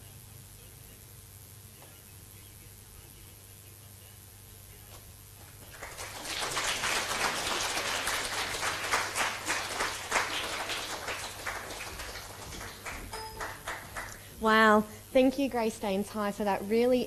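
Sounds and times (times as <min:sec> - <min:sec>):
audience applauding: 0:05.6 - 0:14.3.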